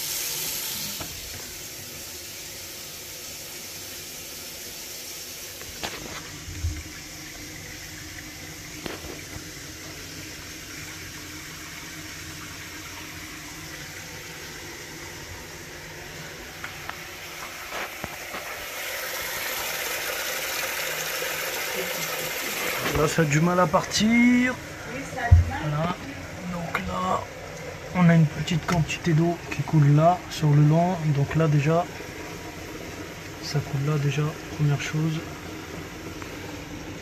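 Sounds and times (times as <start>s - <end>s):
tap water running into sink: 0.0s - 37.0s
light knocks in pipes: 25.3s - 25.6s
low thump: 25.3s - 25.6s.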